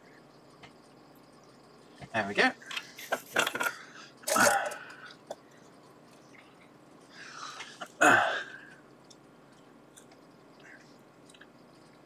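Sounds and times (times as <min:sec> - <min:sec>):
soft breath: 0:04.8 - 0:07.8.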